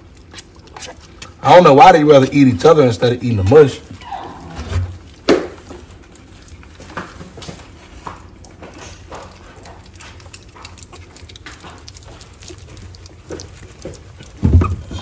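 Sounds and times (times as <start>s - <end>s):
puppies licking clicks and smacks: 0.0s - 4.0s, 4.9s - 15.0s
puppies squeaking: 3.5s - 5.1s, 12.6s - 15.0s
paws scrabbling on pads: 3.5s - 15.0s.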